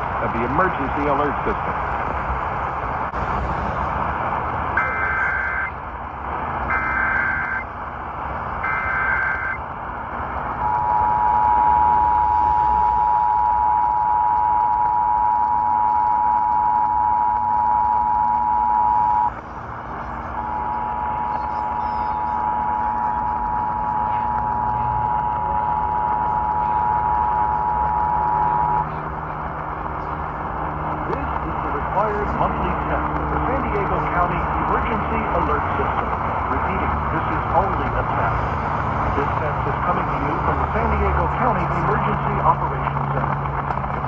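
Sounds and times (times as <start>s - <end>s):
radio static hiss: 0.0s - 2.8s, 3.6s - 7.8s, 8.6s - 44.0s
data tone bursts: 4.8s - 5.8s, 6.7s - 7.7s, 8.6s - 9.6s, 10.5s - 19.4s, 20.3s - 28.9s
two-tone attention signal: 6.7s - 7.6s, 8.6s - 9.6s, 10.6s - 19.4s, 20.4s - 28.9s.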